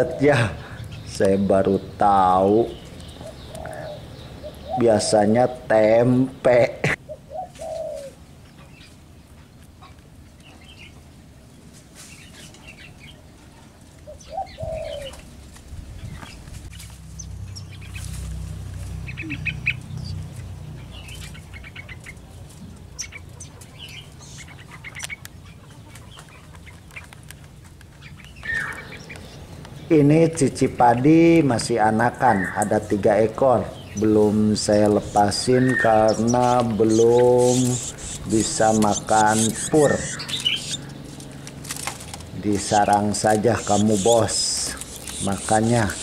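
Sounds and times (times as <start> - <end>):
birds chirping: 0.0 - 46.0
wing flutters: 34.8 - 46.0.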